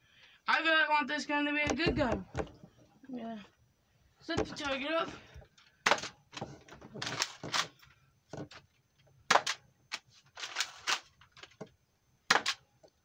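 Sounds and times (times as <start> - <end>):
foam dart blaster snaps: 9.3 - 9.6, 12.3 - 12.6.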